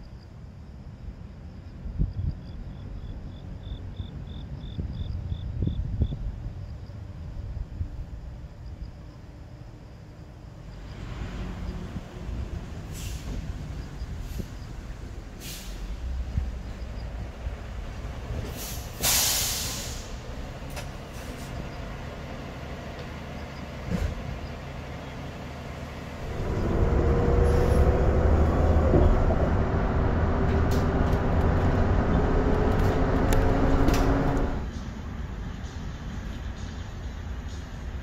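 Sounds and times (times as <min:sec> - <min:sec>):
bus engine rumble and whine: 0:00.0 - 0:38.0
air brake hiss: 0:12.9 - 0:13.5, 0:15.4 - 0:16.1, 0:18.4 - 0:20.3.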